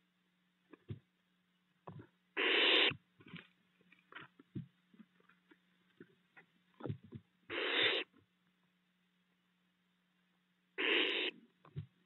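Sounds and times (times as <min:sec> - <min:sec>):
faint low hum: 0:00.0 - 0:12.0
owlets hissing: 0:02.4 - 0:03.0, 0:07.5 - 0:08.1, 0:10.8 - 0:11.4.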